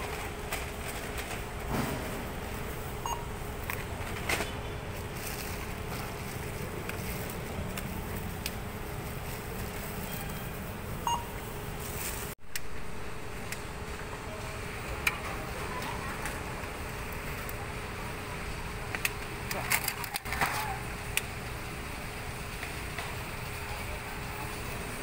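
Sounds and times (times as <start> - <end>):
supermarket background noise: 0.0 - 25.0
short electronic beeps: 3.0 - 3.3, 11.0 - 11.4.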